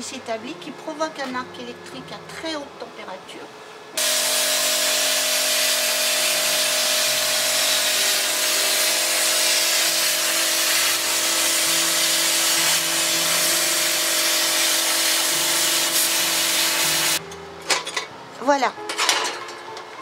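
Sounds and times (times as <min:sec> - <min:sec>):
plasma cutter hissing: 0:04.0 - 0:17.2.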